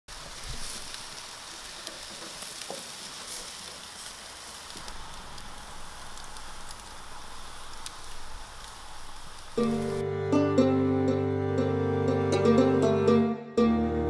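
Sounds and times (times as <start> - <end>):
coals crackling and popping: 0.1 - 10.0
kebabs sizzling on charcoal grill: 0.1 - 12.9.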